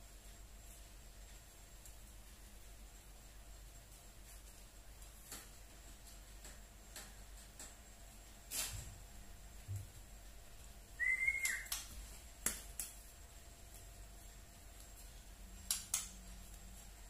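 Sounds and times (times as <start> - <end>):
bird whistled call: 11.0 - 11.7.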